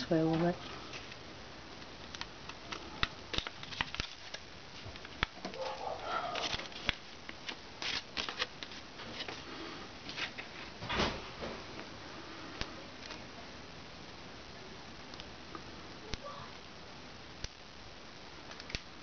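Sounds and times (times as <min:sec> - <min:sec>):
paper rustling and crinkling: 0:02.1 - 0:11.6.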